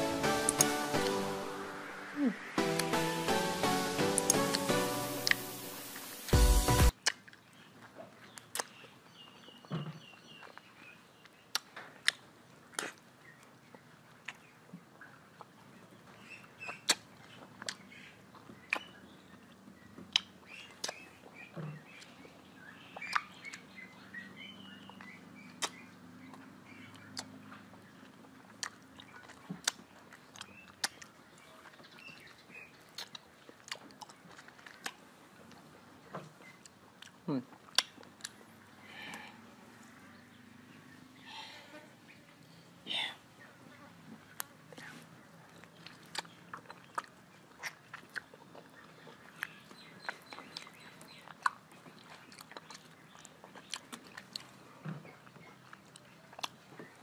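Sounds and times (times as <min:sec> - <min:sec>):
wet mouth eating sounds: 0:00.0 - 0:01.4, 0:02.1 - 0:09.0, 0:10.0 - 0:39.3, 0:44.3 - 0:57.0
background music: 0:00.0 - 0:06.9.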